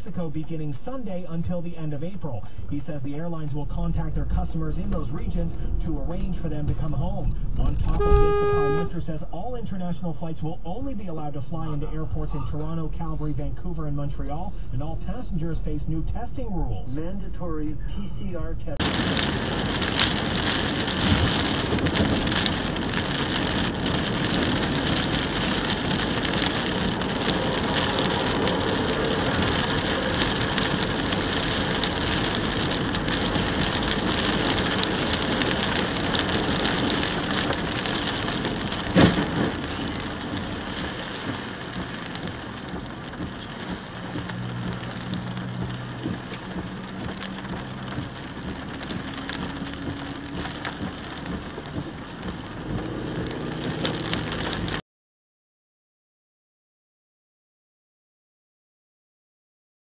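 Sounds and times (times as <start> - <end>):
low steady hum: 0.0 - 19.0
heavy rain drumming on car: 0.1 - 9.8, 18.4 - 54.8.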